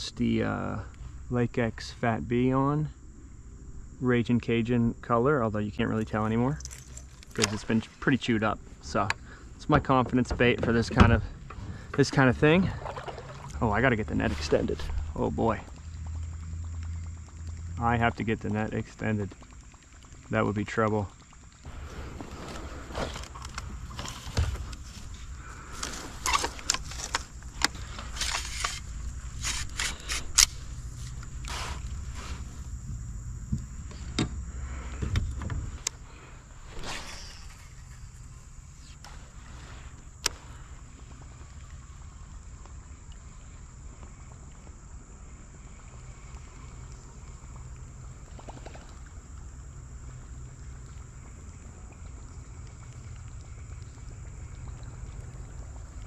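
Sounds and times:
water and wind rumble: 0:05.7 - 0:56.0
short scrapes and knocks: 0:36.6 - 0:39.7.

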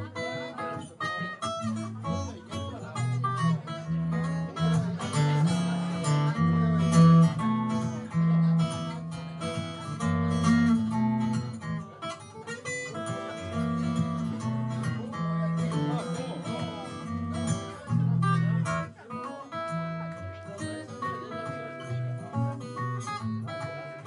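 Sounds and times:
acoustic guitar solo: 0:00.0 - 0:24.0.

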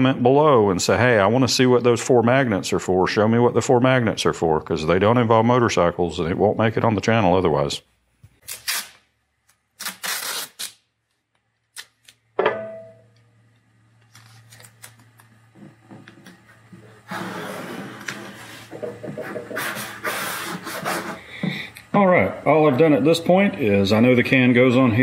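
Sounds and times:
masking tape ripping off roll: 0:08.4 - 0:11.0, 0:11.6 - 0:12.2
hands rubbing tape flat: 0:16.6 - 0:21.2.

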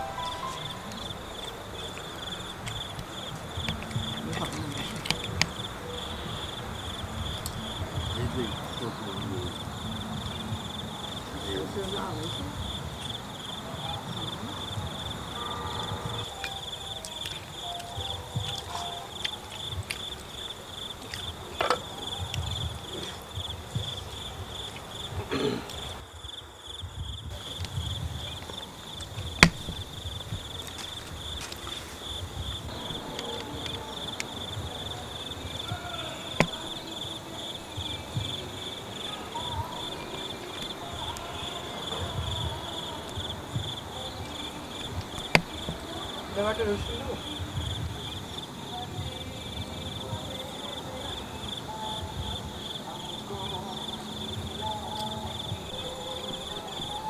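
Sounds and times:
insects chirping: 0:00.0 - 0:57.0
sharp clicks or knocks: 0:29.4 - 0:29.8.

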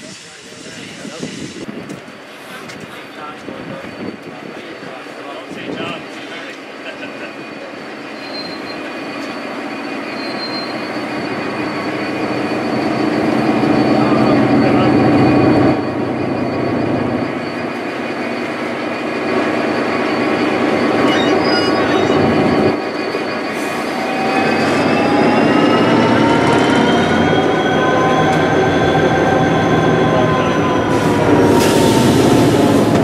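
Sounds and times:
diesel locomotive engine running: 0:00.0 - 0:33.0
rising and falling whine: 0:11.1 - 0:33.0.

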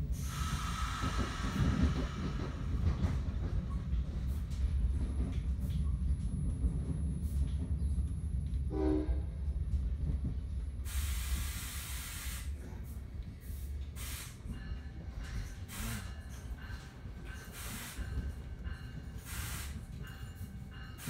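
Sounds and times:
train rumble from inside coach: 0:00.0 - 0:21.0
loud air hiss: 0:00.2 - 0:02.8, 0:10.9 - 0:12.6, 0:13.5 - 0:14.5, 0:15.6 - 0:16.2, 0:17.5 - 0:18.2, 0:19.2 - 0:19.9.

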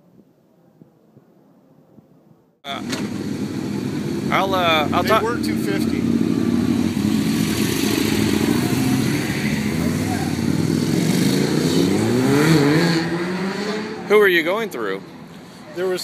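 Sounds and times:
motorcycle engine accelerating: 0:02.7 - 0:14.2.

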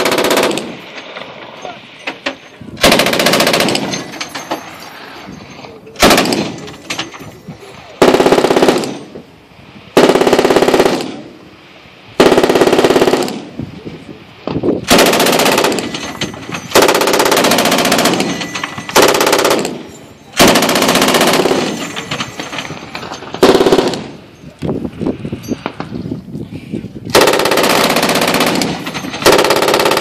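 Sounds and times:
machine gun bursts: 0:00.0 - 0:00.7, 0:02.8 - 0:04.3, 0:06.0 - 0:06.6, 0:08.0 - 0:09.1, 0:12.2 - 0:13.4, 0:14.9 - 0:24.2, 0:27.1 - 0:30.0
gunfire echo: 0:06.0 - 0:06.7, 0:23.3 - 0:24.2.

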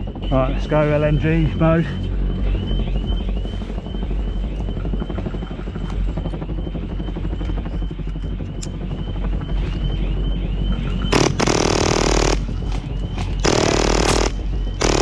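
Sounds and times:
airsoft gun firing full auto: 0:11.1 - 0:12.4, 0:13.4 - 0:15.0.

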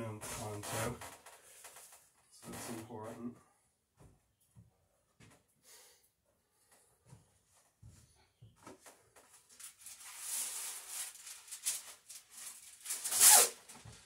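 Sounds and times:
rustling and scraping: 0:00.2 - 0:02.9, 0:07.1 - 0:14.0.

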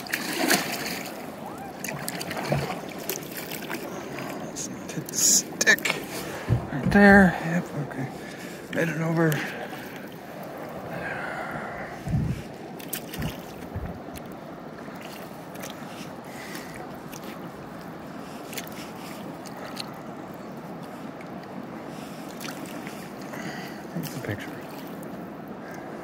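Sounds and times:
faint splashes: 0:00.0 - 0:26.0
river water rushing: 0:00.0 - 0:26.0
low thumps: 0:06.3 - 0:07.3.

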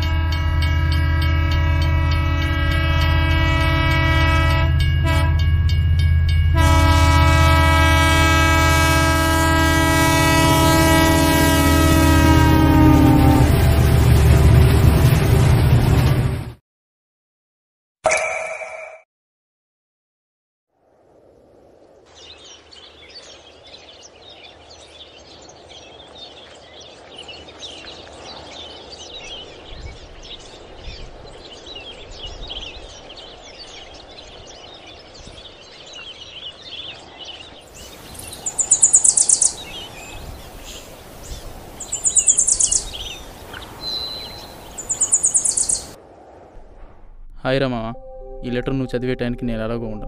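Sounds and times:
birds chirping: 0:22.0 - 0:46.0.

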